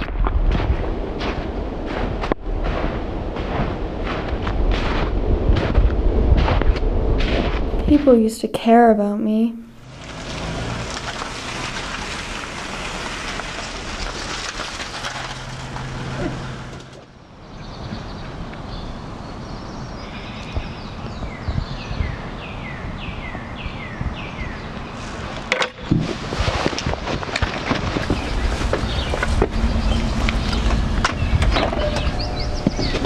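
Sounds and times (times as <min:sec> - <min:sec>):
street traffic noise: 0:09.7 - 0:21.5, 0:27.0 - 0:33.0
car engine passing: 0:09.8 - 0:17.2, 0:28.1 - 0:33.0
bird chirping: 0:17.4 - 0:25.0, 0:28.0 - 0:33.0.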